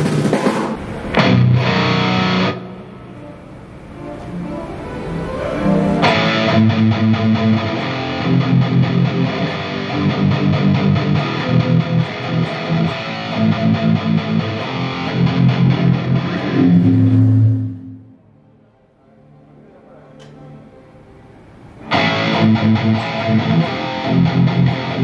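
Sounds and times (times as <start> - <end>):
electric guitar through amplifier: 0.0 - 18.7, 20.0 - 25.0
low bass notes: 5.7 - 18.3.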